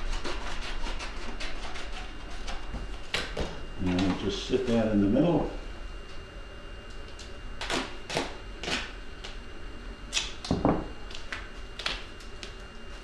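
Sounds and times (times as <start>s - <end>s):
adhesive tape ripping: 7.6s - 8.9s.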